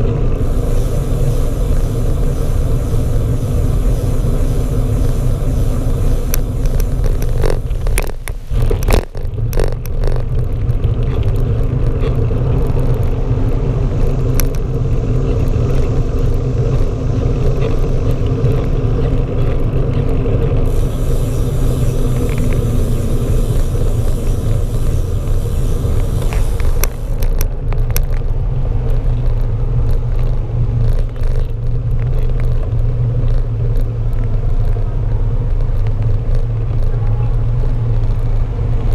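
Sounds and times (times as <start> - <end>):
wind on microphone: 0.0 - 11.1, 20.6 - 27.3
tyres on asphalt rumble: 0.0 - 38.9
bicycle knocks and rattles: 0.4 - 13.0, 20.7 - 34.8.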